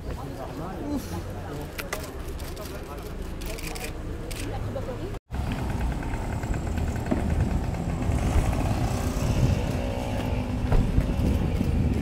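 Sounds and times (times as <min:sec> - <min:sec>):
street traffic: 0:00.0 - 0:12.0
motorcycle engine running: 0:05.4 - 0:12.0.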